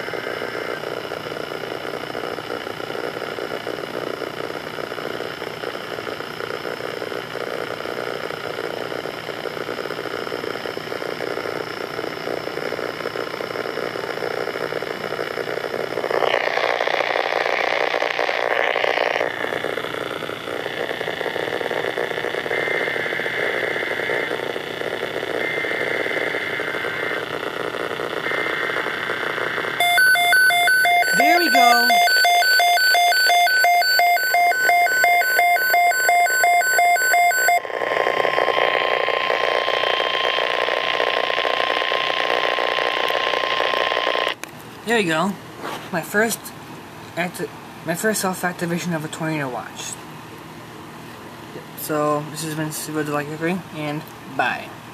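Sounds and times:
faint hum: 0.0 - 54.9
pulsing alert beeps: 29.8 - 37.6.

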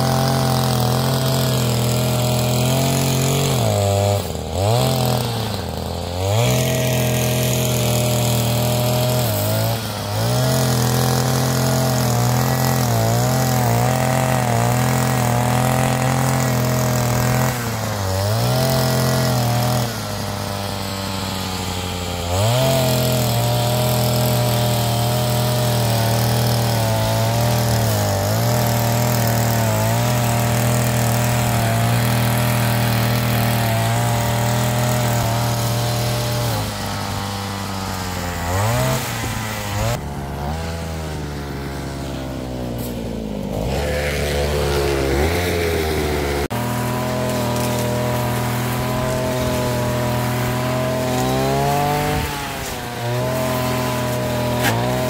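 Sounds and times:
brush cutter cutting grass: 0.0 - 55.0.

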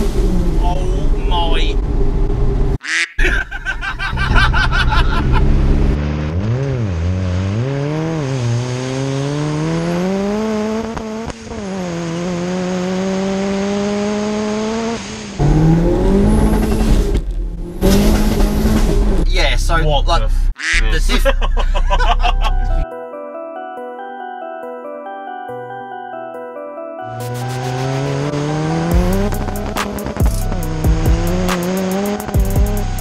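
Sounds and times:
van engine accelerating hard: 3.9 - 20.2, 27.1 - 33.0.

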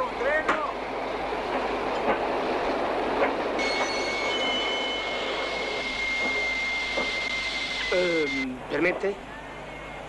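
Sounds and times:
train rolling: 0.0 - 10.0
wheels knocking on rails: 1.4 - 7.4
high steady squeal: 3.6 - 8.5.

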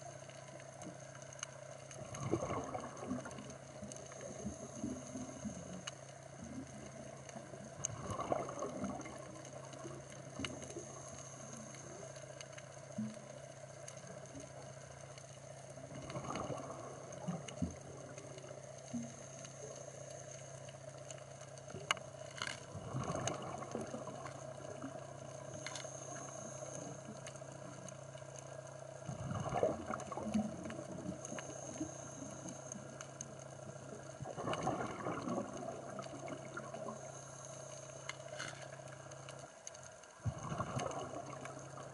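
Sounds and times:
steady underwater hum: 0.0 - 41.9
diver's bubbles gurgling underwater: 2.0 - 5.8, 6.4 - 10.9, 15.8 - 19.0, 22.7 - 25.0, 29.1 - 31.8, 33.6 - 37.0, 40.2 - 41.9.

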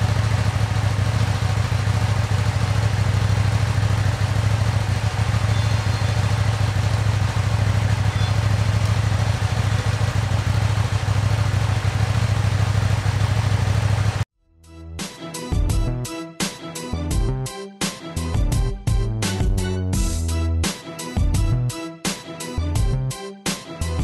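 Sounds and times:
motorcycle engine idling: 0.0 - 14.2.

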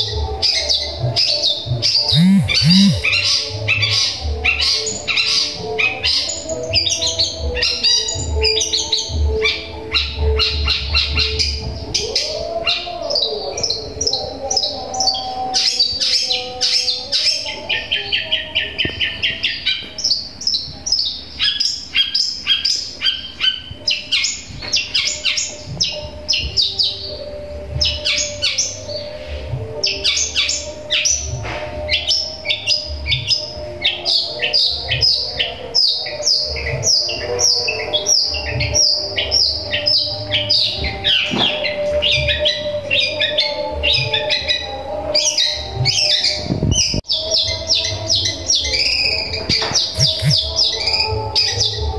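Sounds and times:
bird chirping and chattering: 2.0 - 3.2, 49.9 - 50.7.

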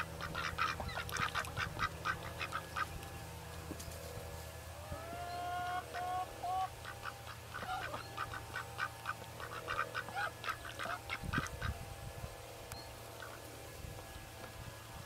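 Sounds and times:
ducks quacking: 0.0 - 3.1, 5.0 - 11.8.

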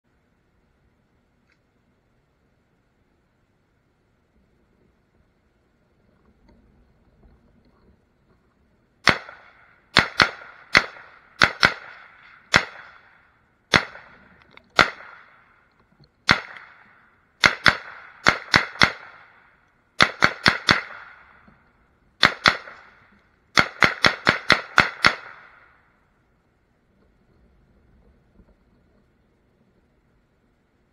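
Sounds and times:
gunshots with echo: 9.0 - 15.5, 16.3 - 19.4, 20.0 - 21.4, 22.2 - 25.7.

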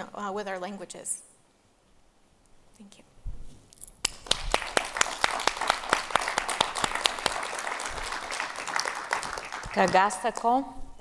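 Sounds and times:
audience applauding: 4.0 - 10.5.

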